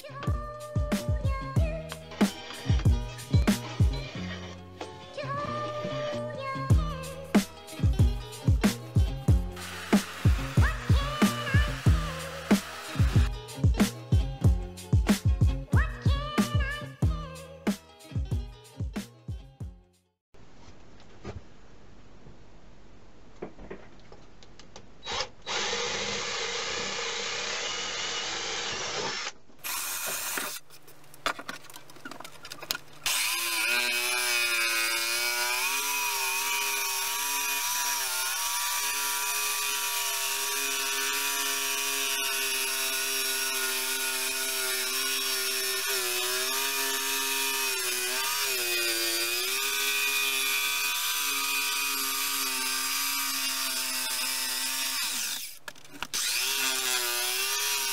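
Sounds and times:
electric jigsaw cutting wood: 9.5s - 13.3s, 25.1s - 30.6s, 33.0s - 57.9s
drill boring into wood: 9.6s - 13.3s, 25.0s - 30.6s, 33.1s - 57.9s.

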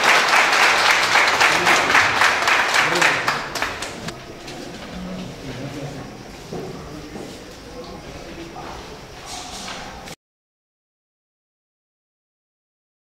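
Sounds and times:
audience applauding: 0.0s - 4.2s
low voices talking: 0.0s - 10.2s.

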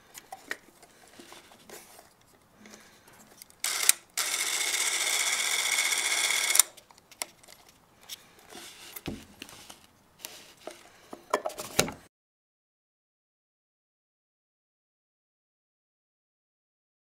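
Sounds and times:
camera handling clicks and rattles: 3.3s - 7.8s
clockwork camera motor whirring: 3.6s - 6.8s.

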